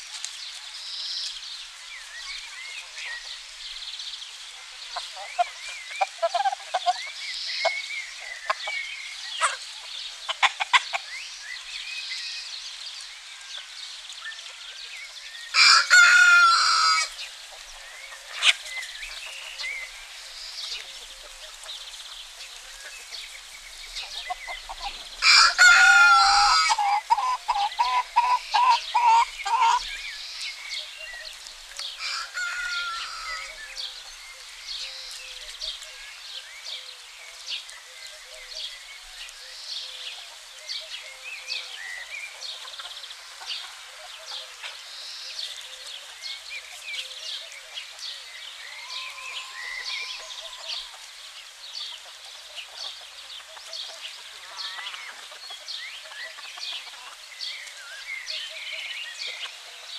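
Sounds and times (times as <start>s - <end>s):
hens clucking: 4.6s - 11.2s, 15.6s - 30.0s, 30.9s - 33.7s, 48.7s - 51.2s, 51.9s - 57.8s
rooster crowing: 15.5s - 17.2s, 25.2s - 27.2s, 32.0s - 33.6s, 48.7s - 51.0s.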